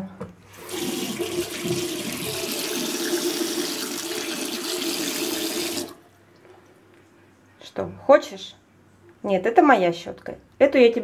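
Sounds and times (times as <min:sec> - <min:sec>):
tap water running into sink: 0:00.5 - 0:06.0.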